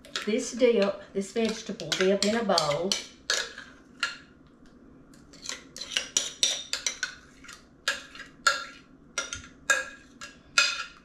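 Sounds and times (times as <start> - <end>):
spoon scraping dip: 5.3 - 8.8.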